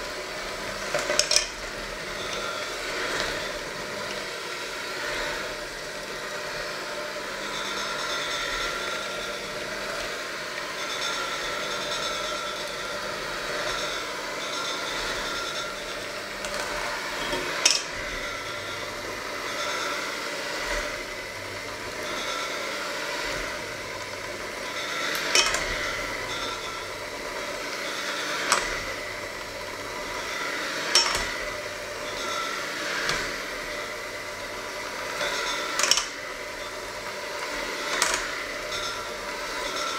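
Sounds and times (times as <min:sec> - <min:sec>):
electric hand mixer running: 0:00.0 - 0:39.9
beaters clinking on steel bowl: 0:00.9 - 0:02.7, 0:13.6 - 0:20.0, 0:24.6 - 0:27.0, 0:30.8 - 0:33.4, 0:35.0 - 0:36.8, 0:37.8 - 0:39.9.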